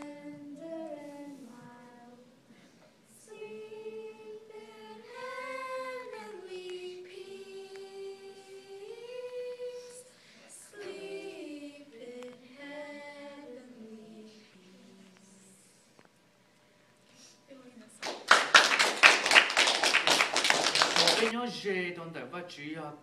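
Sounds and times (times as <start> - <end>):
women and children singing: 0.0 - 15.8.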